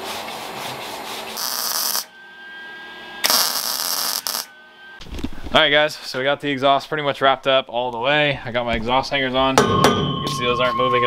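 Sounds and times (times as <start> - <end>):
welding arc hissing and crackling: 1.4 - 2.1, 3.2 - 4.5.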